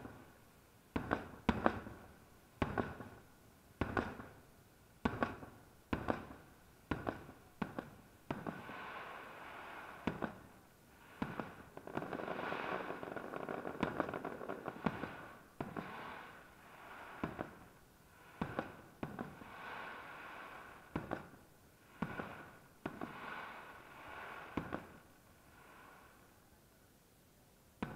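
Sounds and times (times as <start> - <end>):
continuous wash of noise: 0.0 - 27.9
firework shells bursting: 18.2 - 19.7.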